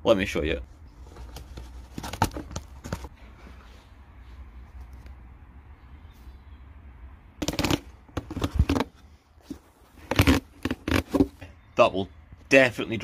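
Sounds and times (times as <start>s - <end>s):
air filter scraping plastic box: 0.9s - 3.6s, 7.4s - 11.4s.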